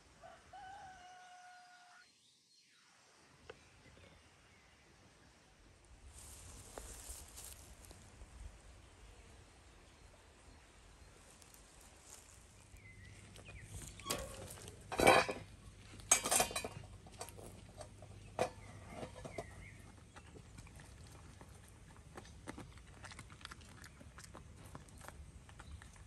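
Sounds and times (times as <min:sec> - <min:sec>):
steel dog bowl clanking: 0:13.9 - 0:20.3
dog eating from metal bowl: 0:16.1 - 0:26.0.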